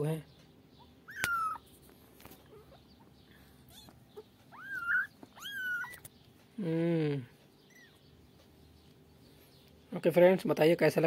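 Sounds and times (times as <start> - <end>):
kittens mewing: 0.9 - 1.7, 2.4 - 6.1, 7.1 - 8.1.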